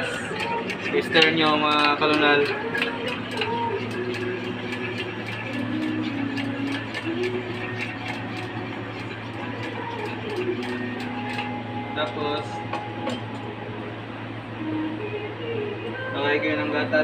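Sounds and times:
spoon clinking in metal pitcher: 0:00.0 - 0:13.5
steady low hum: 0:00.0 - 0:17.0.

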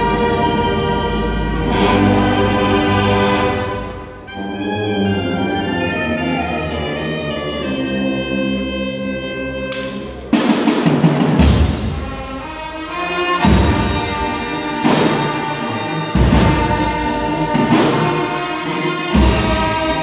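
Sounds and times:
marching band brass chords: 0:00.0 - 0:20.0
loud percussion hits: 0:09.8 - 0:20.0.

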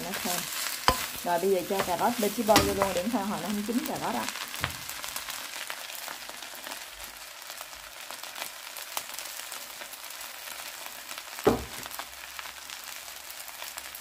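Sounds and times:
rice sizzling in a wok: 0:00.0 - 0:14.0
sharp knock: 0:11.5 - 0:11.8.

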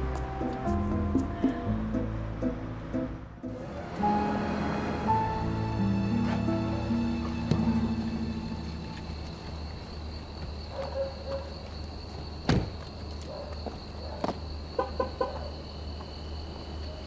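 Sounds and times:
crickets chirping: 0:03.5 - 0:17.0.

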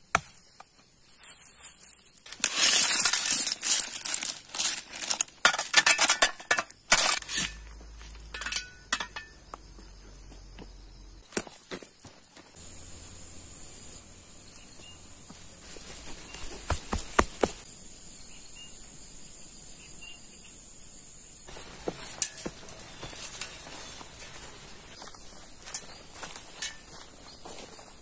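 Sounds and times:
crickets shrilling: 0:00.0 - 0:28.0
footfalls on stony dirt: 0:09.4 - 0:12.6, 0:14.8 - 0:17.7, 0:21.5 - 0:28.0.

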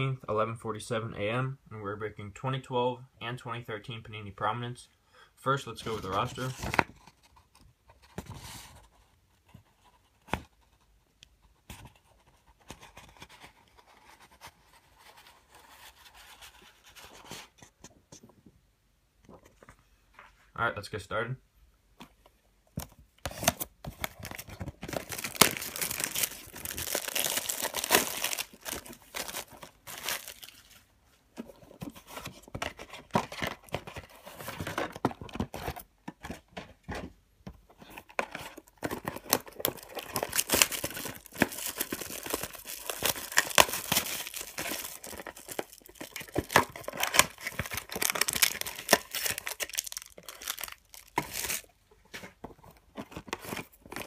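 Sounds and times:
plastic wrapping tearing and crinkling: 0:23.3 - 0:30.6, 0:39.1 - 0:51.7.

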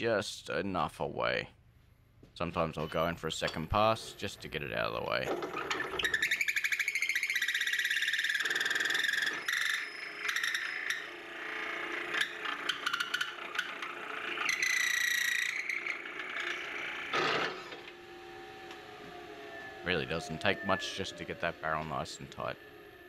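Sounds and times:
drill bit squealing in wood: 0:05.3 - 0:23.0.

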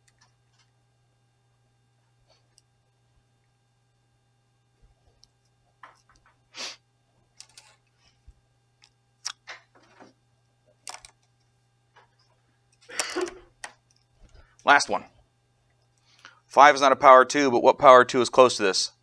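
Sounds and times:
small clicks and rustles: 0:00.0 - 0:00.8, 0:07.3 - 0:14.6
low electrical hum: 0:00.0 - 0:19.0
breath-like hiss: 0:06.5 - 0:06.8.

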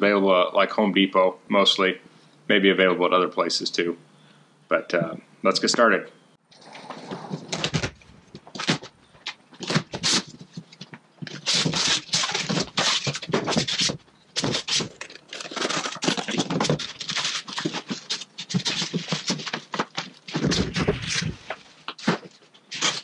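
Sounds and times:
cardboard scraping and sliding: 0:06.6 - 0:08.9, 0:11.2 - 0:23.0
plastic wrap rustling: 0:07.2 - 0:23.0.

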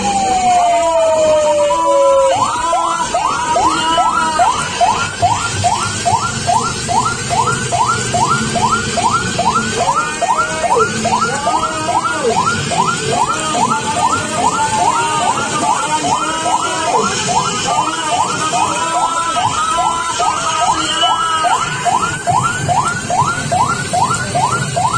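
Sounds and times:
siren in fast yelp pattern: 0:00.0 - 0:24.9.

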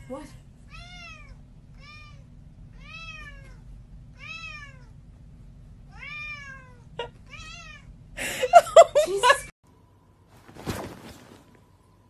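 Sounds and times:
cat meowing: 0:00.7 - 0:03.6, 0:04.2 - 0:04.9, 0:05.9 - 0:07.9.

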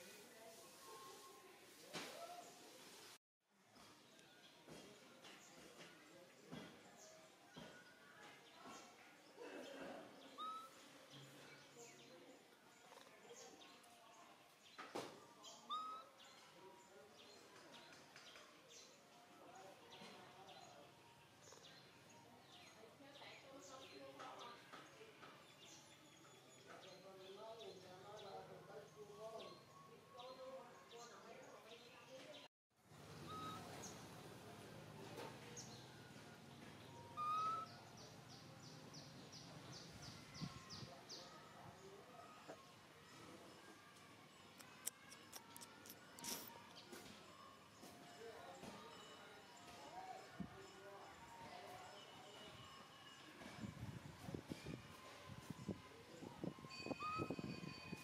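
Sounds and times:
faint bird chirps: 0:09.6 - 0:14.0, 0:14.8 - 0:19.0, 0:33.0 - 0:34.3, 0:35.5 - 0:53.2
faint birds calling: 0:33.0 - 0:34.2, 0:36.7 - 0:38.3
whistled notes: 0:37.0 - 0:37.8, 0:56.7 - 0:57.9.

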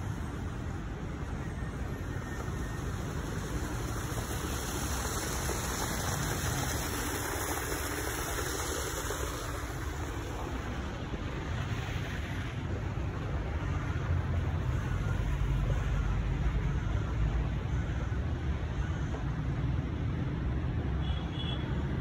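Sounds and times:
water rushing over stones: 0:01.8 - 0:17.7.

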